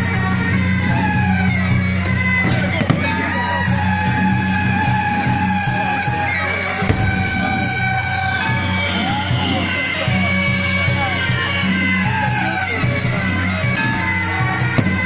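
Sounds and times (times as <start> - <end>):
crowd noise: 0.0 - 15.0
loud music with steady beat: 6.7 - 9.2.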